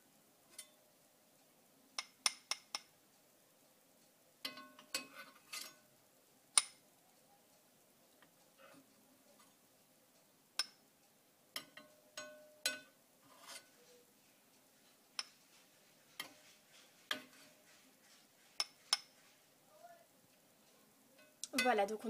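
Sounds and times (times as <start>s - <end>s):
metal skimmer clinking on pans: 4.4s - 5.8s, 11.6s - 13.0s.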